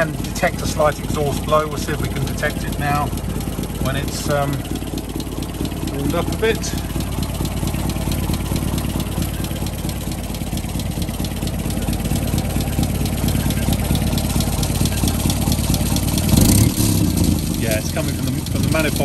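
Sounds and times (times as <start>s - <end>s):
car engine idling: 0.0s - 19.0s
exhaust puffing tick: 0.0s - 19.0s.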